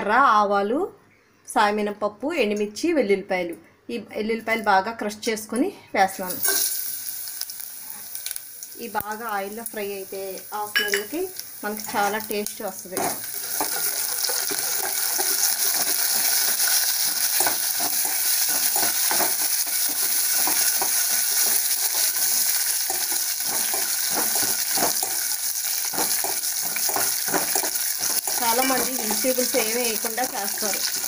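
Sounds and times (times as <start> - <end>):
hot oil sizzling: 6.2 - 31.0
metal spatula scraping pot: 13.0 - 31.0.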